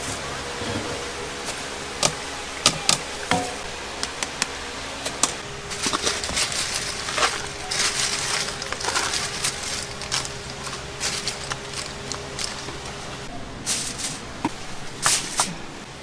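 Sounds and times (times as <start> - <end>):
steady low hum: 0.0 - 16.0
utensils clicking and knocking: 5.2 - 13.1.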